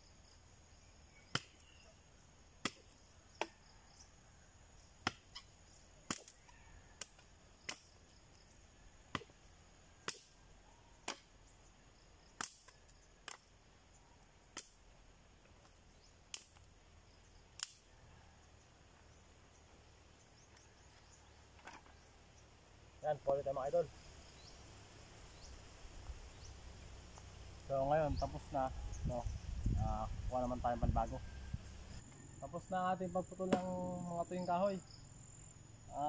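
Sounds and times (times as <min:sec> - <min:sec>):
blade chopping dry wood: 0:02.6 - 0:03.6, 0:09.1 - 0:09.4, 0:10.0 - 0:10.3, 0:11.0 - 0:11.3, 0:12.4 - 0:13.4, 0:33.5 - 0:33.7.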